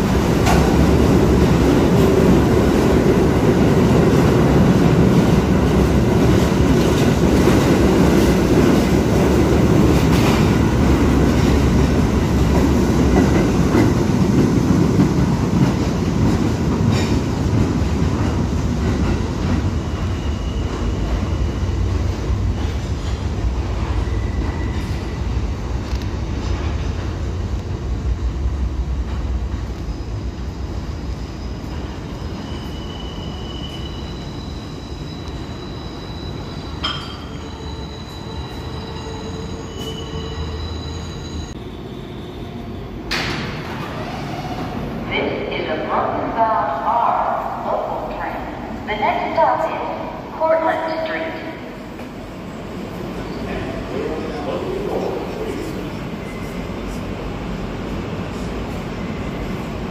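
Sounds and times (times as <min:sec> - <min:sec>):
subway train rumbling: 0:00.0 - 0:59.9
train wheel squeals: 0:19.6 - 0:23.2, 0:23.8 - 0:25.6, 0:29.7 - 0:42.9, 0:55.4 - 0:57.0.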